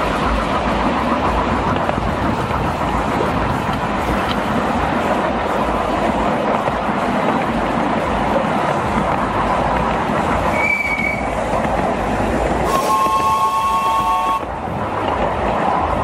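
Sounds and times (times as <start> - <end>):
miniature train rumbling on track: 0.0 - 16.0
locomotive whistle chord: 10.5 - 11.3, 12.6 - 14.5.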